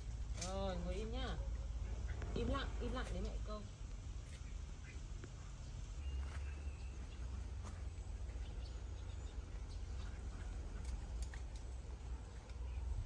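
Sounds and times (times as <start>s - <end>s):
steady low rumble: 0.0s - 13.0s
faint bird chirps: 4.3s - 11.0s.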